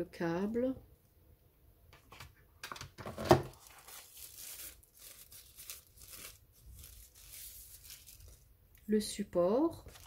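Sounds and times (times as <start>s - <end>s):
plastic bag rustling and crinkling: 3.1s - 8.6s, 9.8s - 10.0s.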